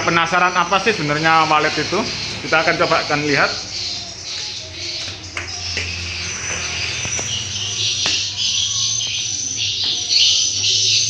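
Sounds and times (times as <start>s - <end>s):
swiftlets twittering: 0.0s - 11.0s
footsteps on stairs: 3.8s - 11.0s.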